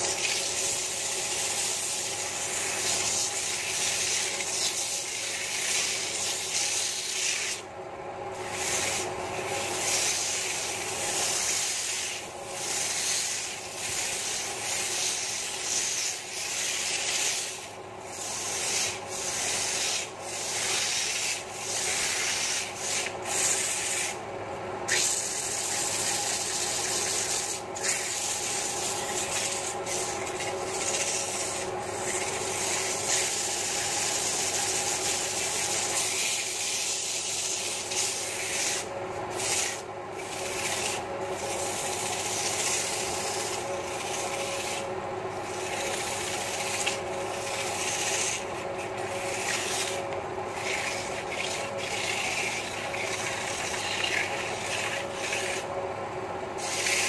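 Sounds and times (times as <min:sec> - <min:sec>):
sandpaper rasping on spinning wood: 0:00.0 - 0:07.7, 0:08.3 - 0:24.2, 0:24.9 - 0:55.7, 0:56.6 - 0:57.0
lathe humming: 0:25.1 - 0:57.0.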